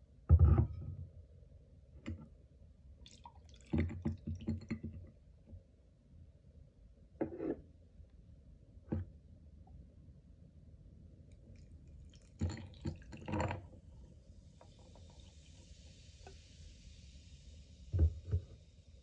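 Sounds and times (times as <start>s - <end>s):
carbonation fizzing: 14.4s - 18.9s.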